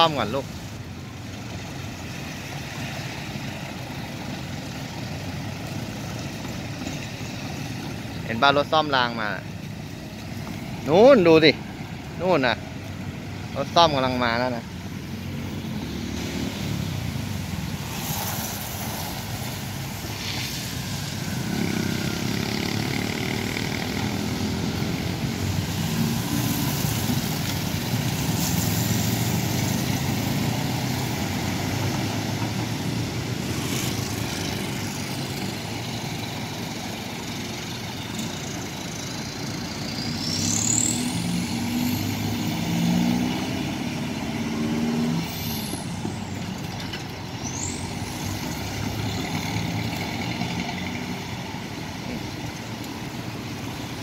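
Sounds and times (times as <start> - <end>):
road traffic: 0.0 - 54.0
high rising squeal: 39.2 - 46.7.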